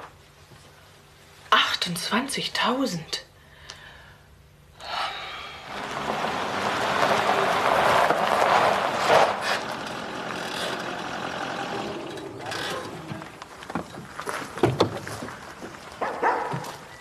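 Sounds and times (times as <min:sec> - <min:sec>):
vehicle passing road noise: 0:04.9 - 0:13.7.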